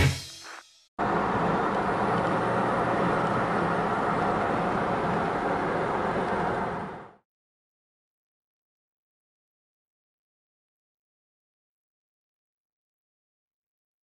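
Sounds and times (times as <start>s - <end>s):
car road and engine noise: 1.0s - 7.2s.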